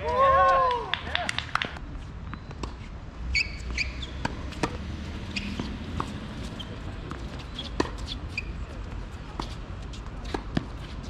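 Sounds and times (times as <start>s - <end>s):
shoe squeaks: 2.3s - 8.8s
tennis ball and racket hits: 3.4s - 11.0s.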